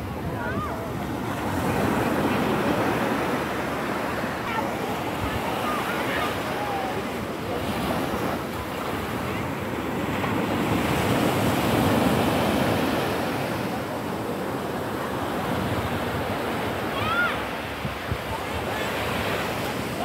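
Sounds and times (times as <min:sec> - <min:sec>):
waves washing on beach: 0:00.0 - 0:20.0
wind on microphone: 0:17.6 - 0:20.0.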